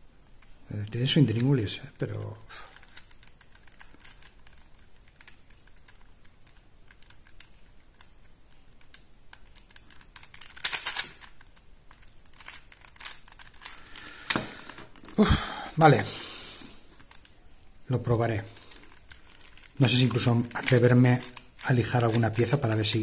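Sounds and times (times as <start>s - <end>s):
plastic puzzle pieces clicking: 2.7s - 15.2s, 18.1s - 23.0s.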